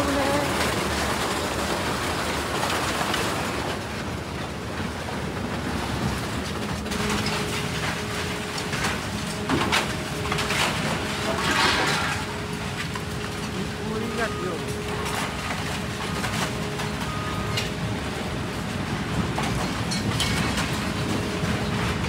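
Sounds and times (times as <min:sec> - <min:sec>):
steady hum: 0:06.0 - 0:19.5
scrap shredder clattering: 0:06.5 - 0:17.1.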